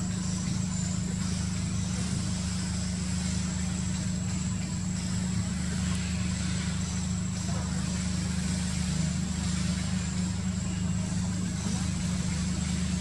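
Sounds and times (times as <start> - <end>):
low mechanical drone: 0.0 - 13.0.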